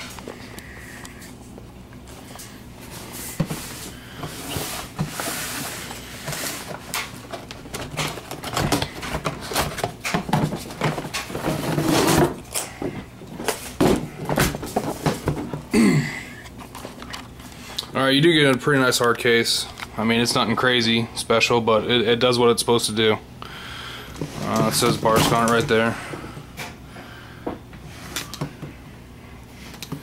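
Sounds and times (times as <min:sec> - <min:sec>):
cardboard rustling and scraping: 0:02.2 - 0:15.7, 0:24.1 - 0:25.9
hard case knocks and clunks: 0:07.3 - 0:15.7.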